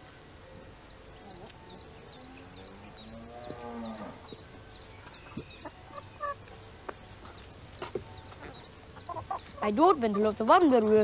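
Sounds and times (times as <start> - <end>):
small birds chirping: 0.0 - 11.0
cow mooing: 2.2 - 4.3.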